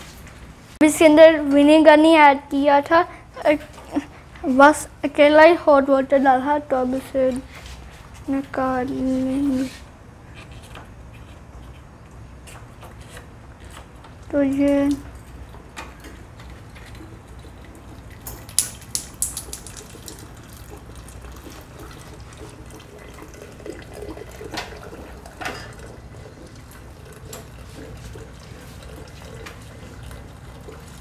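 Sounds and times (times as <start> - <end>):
water trickling into glass jug: 14.9 - 31.0.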